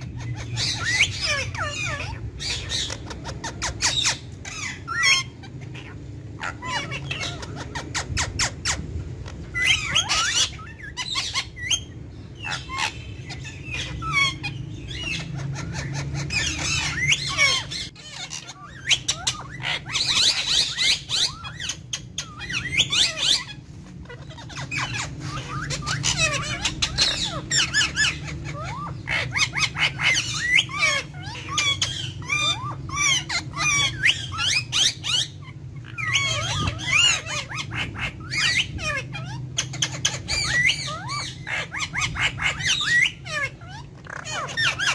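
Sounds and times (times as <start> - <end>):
parakeets squawking: 0.0 - 44.9.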